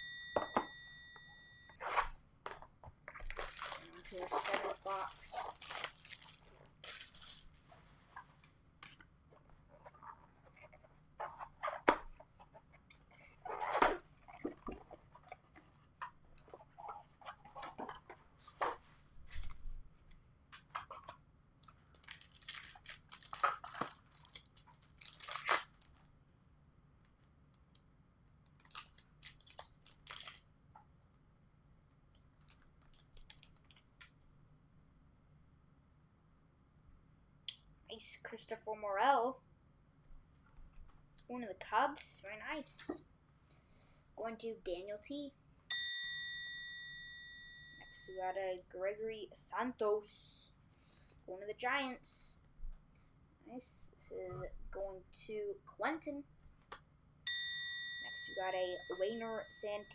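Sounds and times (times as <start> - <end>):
plastic wrappers tearing and crinkling: 3.1 - 7.6, 21.6 - 26.1, 28.4 - 30.4, 32.3 - 33.8.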